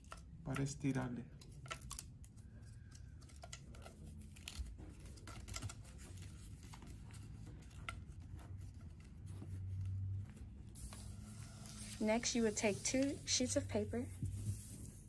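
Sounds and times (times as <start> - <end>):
plastic straws clicking and rustling: 0.0 - 10.0.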